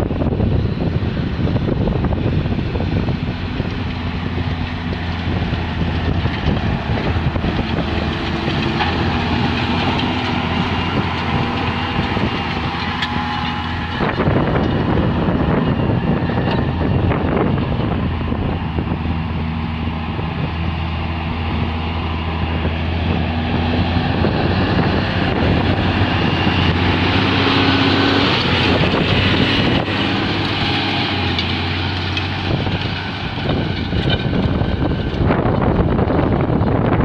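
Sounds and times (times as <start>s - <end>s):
tractor diesel engine running: 0.0s - 37.0s.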